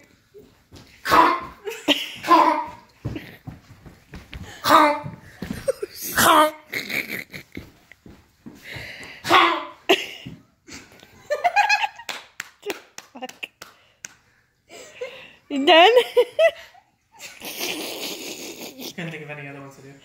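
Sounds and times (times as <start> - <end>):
people shouting wordlessly: 2.2 - 2.8, 4.6 - 5.2, 9.2 - 9.8.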